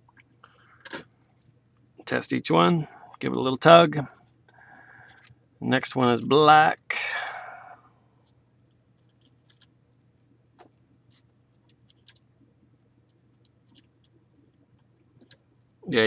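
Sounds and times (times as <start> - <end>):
low steady hum: 0.0 - 16.0
small clicks of wire handling: 4.2 - 5.4.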